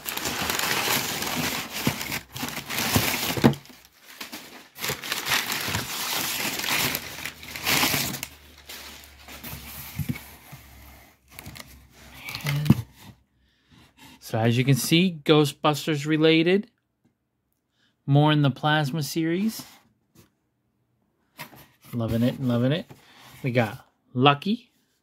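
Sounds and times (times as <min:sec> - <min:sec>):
packing paper crinkling: 0:00.0 - 0:10.2.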